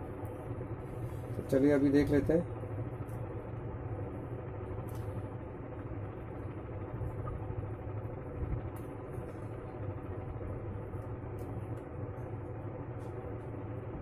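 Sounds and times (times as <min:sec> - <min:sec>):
low background rumble: 0:00.0 - 0:14.0.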